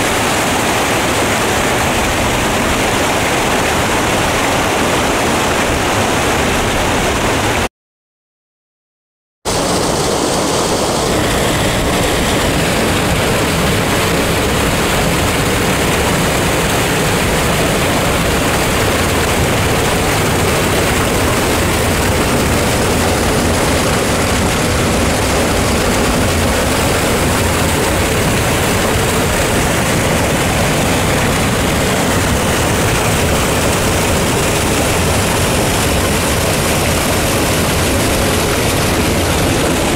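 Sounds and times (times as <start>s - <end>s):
waterfall pouring over rock: 0.0s - 7.7s, 9.5s - 39.9s.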